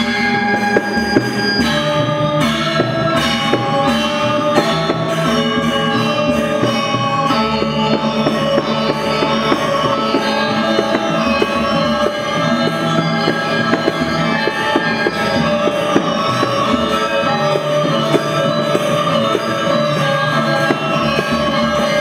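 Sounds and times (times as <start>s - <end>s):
gamelan music: 0.0s - 22.0s.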